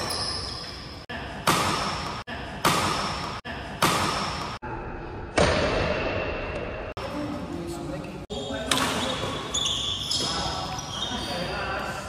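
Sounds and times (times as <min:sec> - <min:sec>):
badminton racket hitting shuttlecock: 0:01.4 - 0:04.6.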